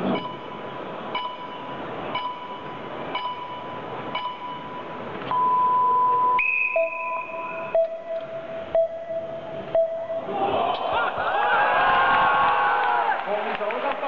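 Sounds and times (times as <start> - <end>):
electronic countdown beeps: 0.2 - 10.3.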